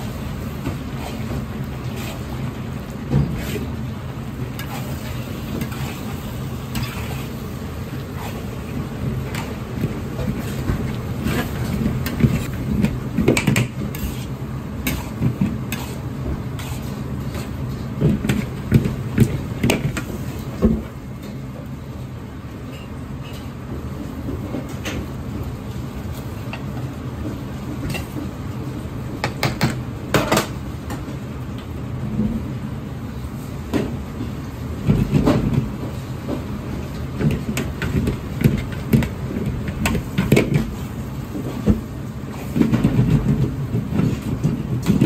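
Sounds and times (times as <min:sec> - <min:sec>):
wok burner rumble: 0:00.0 - 0:45.0
utensils scraping in a wok: 0:00.9 - 0:02.5, 0:03.3 - 0:03.8, 0:04.5 - 0:12.7, 0:13.8 - 0:17.7.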